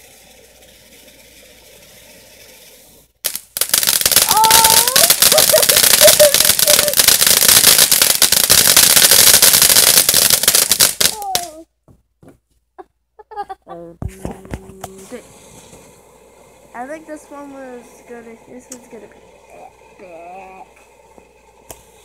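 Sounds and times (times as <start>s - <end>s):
faint hiss: 0.0s - 11.7s, 14.0s - 22.0s
firework crackling pops: 0.0s - 11.7s, 14.1s - 22.0s.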